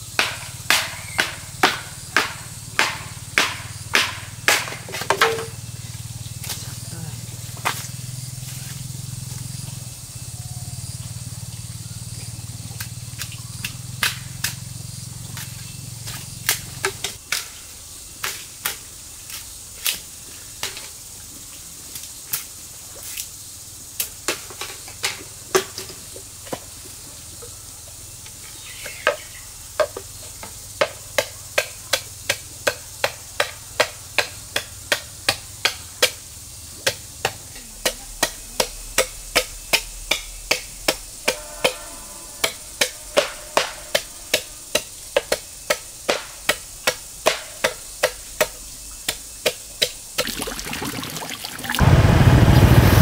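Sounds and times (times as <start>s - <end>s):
machete chopping bamboo: 0.0s - 5.6s, 12.7s - 20.9s, 28.6s - 41.8s, 42.4s - 50.7s.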